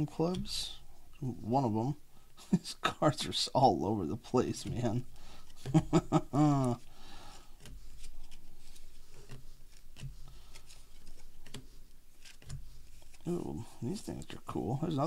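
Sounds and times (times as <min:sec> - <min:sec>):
trading cards being flipped: 0:04.5 - 0:13.4
man murmuring: 0:05.9 - 0:06.8, 0:13.3 - 0:15.0.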